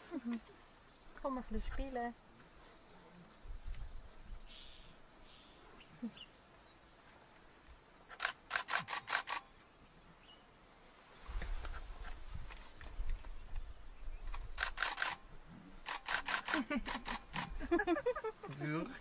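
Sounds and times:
camera shutter burst: 8.2s - 9.5s, 14.6s - 15.2s, 15.8s - 17.5s
high bird chirps: 11.3s - 18.4s.

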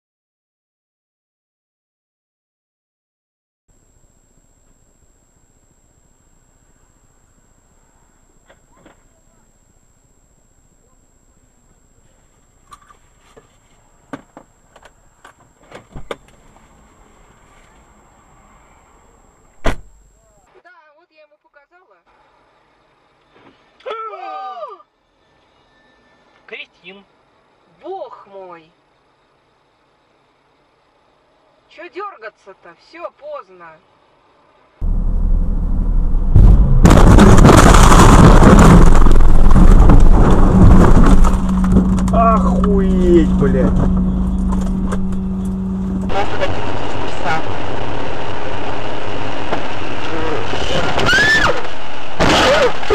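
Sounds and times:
steady low hum: 3.7s - 20.4s, 33.9s - 50.8s
faint high whine: 3.7s - 20.7s, 24.8s - 52.9s
loud thump: 19.6s - 20.0s, 34.8s - 42.2s
car crash: 34.8s - 46.6s, 50.6s - 52.9s
harsh crackling noise: 34.8s - 52.9s.

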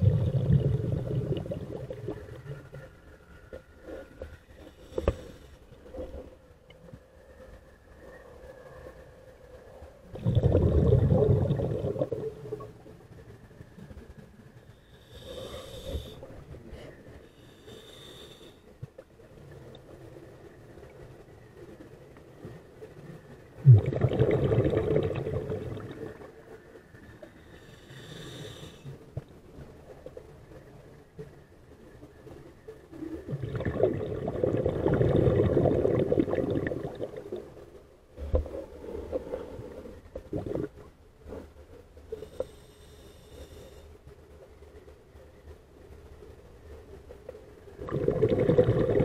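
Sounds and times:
air bubbling underwater: 0.0s - 2.2s, 10.2s - 12.4s, 23.6s - 26.2s, 33.3s - 37.4s, 40.2s - 40.8s, 47.8s - 49.0s
underwater rumble and bubbles: 0.0s - 49.0s
diver breathing through regulator: 14.7s - 18.7s, 27.4s - 29.0s, 42.1s - 43.9s.

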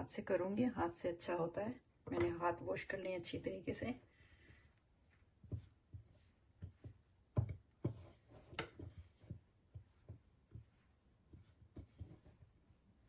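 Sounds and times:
hands rubbing flour: 3.7s - 13.0s.

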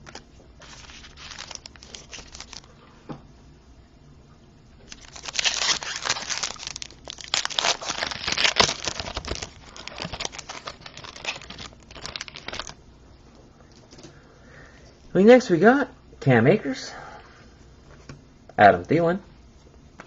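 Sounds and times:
plastic wrapper tearing and crinkling: 0.0s - 2.7s, 4.9s - 12.8s.

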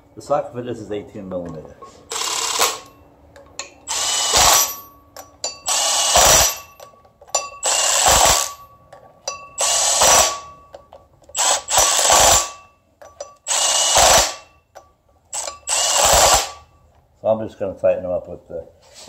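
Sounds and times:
impact wrench bursts: 1.9s - 3.0s, 3.6s - 16.8s.

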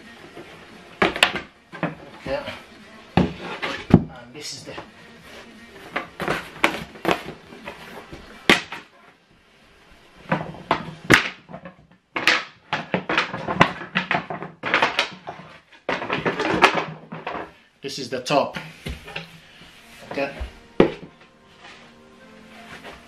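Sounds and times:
wooden boards knocking and clattering: 0.4s - 2.6s, 3.2s - 4.2s, 5.9s - 8.9s, 10.2s - 17.6s.

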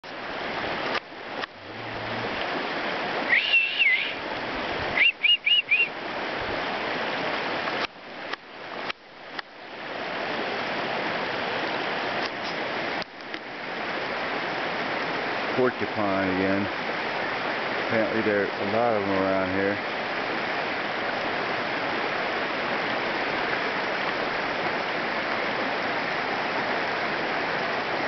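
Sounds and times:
steady rushing outdoor noise: 0.0s - 28.0s
whistled notes: 3.3s - 4.2s, 5.0s - 5.9s.

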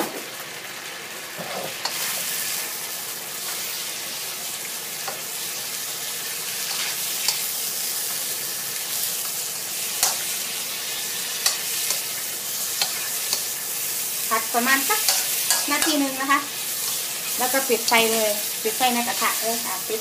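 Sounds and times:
food sizzling in hot oil: 0.0s - 20.0s
spatula stirring in wok: 5.0s - 19.7s
spatula clicking on pan: 11.4s - 12.1s, 12.8s - 13.5s, 15.0s - 16.0s.

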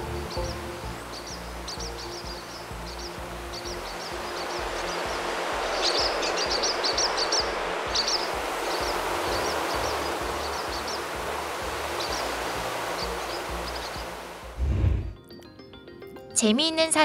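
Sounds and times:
starlings chirping: 0.0s - 14.6s
rushing whoosh of wings: 14.4s - 15.2s.

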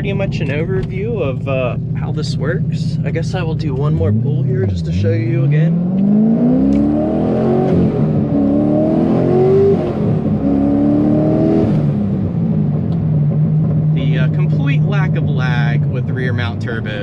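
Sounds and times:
car engine full-throttle pull: 0.0s - 17.0s.

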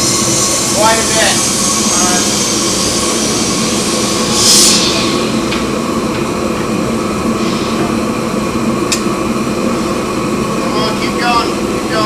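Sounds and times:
loud machinery drone: 0.0s - 12.0s
sharp hiss: 0.1s - 6.4s.

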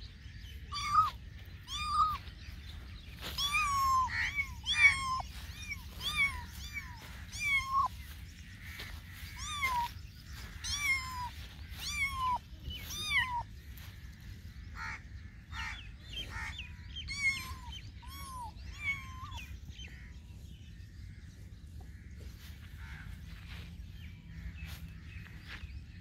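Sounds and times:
kitten meowing: 0.7s - 2.3s, 3.2s - 8.0s, 9.3s - 9.9s, 10.6s - 13.4s, 17.1s - 19.5s.

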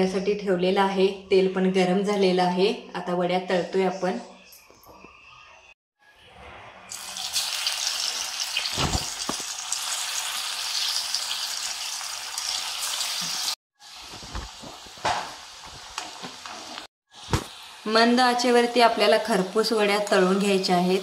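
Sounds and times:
food sizzling in hot oil: 6.9s - 21.0s.

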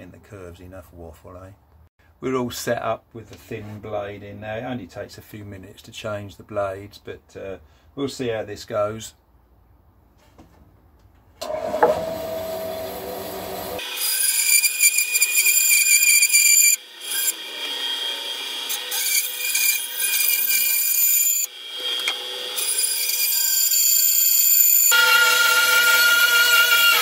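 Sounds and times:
bandsaw cutting wood: 11.4s - 27.0s.

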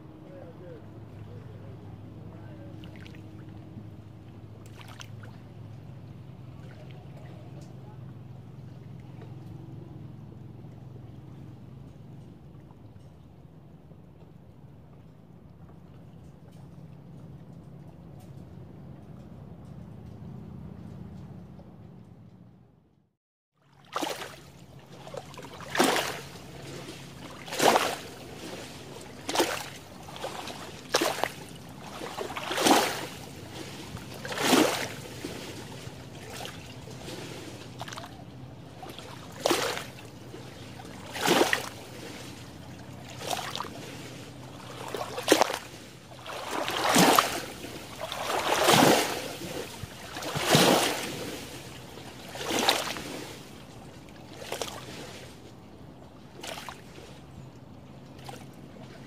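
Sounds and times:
lake waves splashing: 0.0s - 9.4s, 23.6s - 59.0s
water lapping: 0.0s - 21.8s, 23.6s - 59.0s.

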